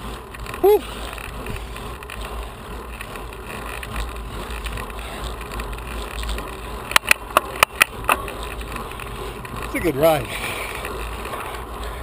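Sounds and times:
wind and road noise: 0.0 - 12.0
sharp clicks: 6.3 - 9.5.

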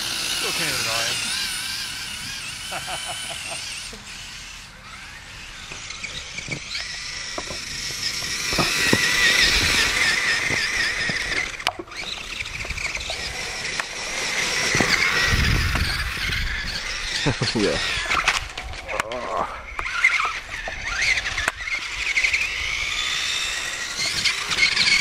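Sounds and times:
toy car electric motor whining: 0.0 - 25.0.

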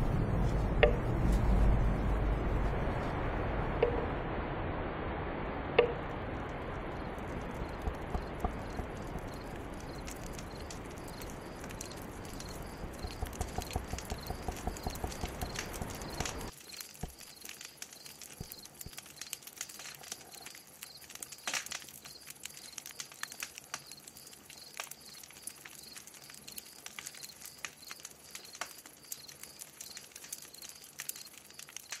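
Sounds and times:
steady rushing noise: 0.0 - 16.5
scattered clicks and taps: 10.0 - 17.2.

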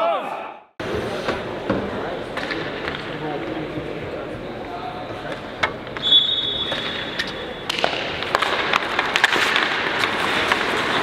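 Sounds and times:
hockey sticks and puck clacking: 1.2 - 3.7, 5.2 - 11.0
whistle blowing: 6.0 - 7.0
skates scraping on ice: 6.6 - 11.0.

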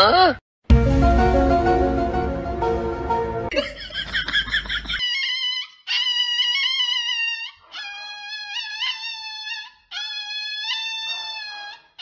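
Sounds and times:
dog howling high-pitched: 5.0 - 12.0.

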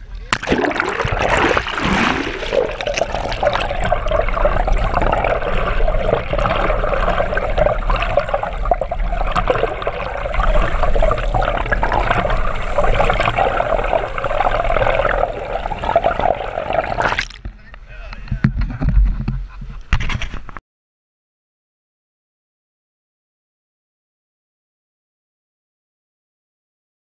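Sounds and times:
water rushing over camera housing: 0.1 - 20.6.

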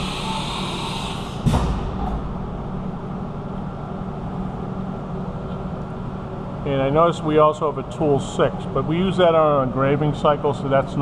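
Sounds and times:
hiss: 0.0 - 1.6
machine hum: 0.0 - 11.0
sharp clunk: 1.4 - 2.3.

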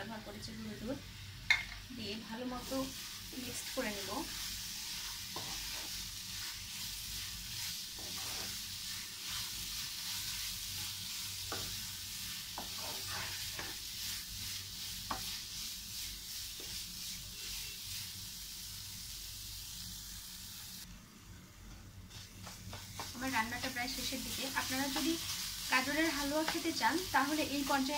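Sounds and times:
food sizzling in frying pan: 0.0 - 20.9, 22.0 - 27.9
wooden spatula scraping pan: 3.5 - 17.8.

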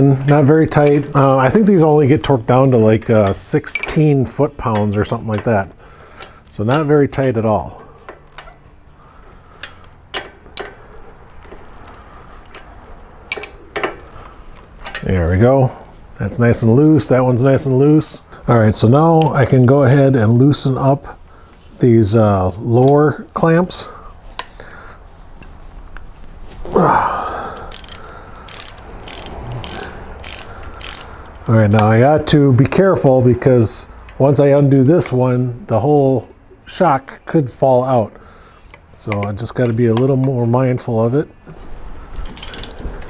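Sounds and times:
socket wrench clicking: 27.6 - 31.4, 42.3 - 42.8.

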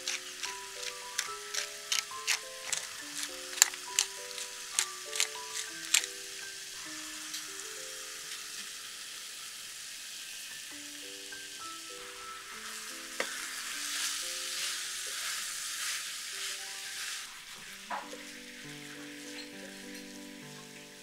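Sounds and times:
sauce sizzling in a frying pan: 0.0 - 21.0
soft background music: 0.0 - 21.0
wooden spatula scraping pan: 13.2 - 18.3.

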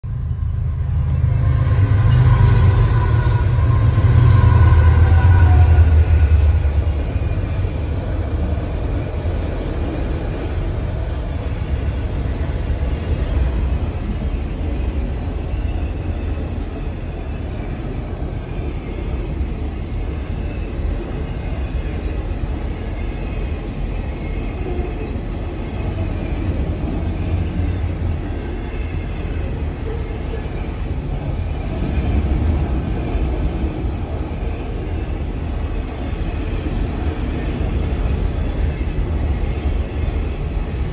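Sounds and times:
train wheels rumbling on rails: 0.0 - 40.9.

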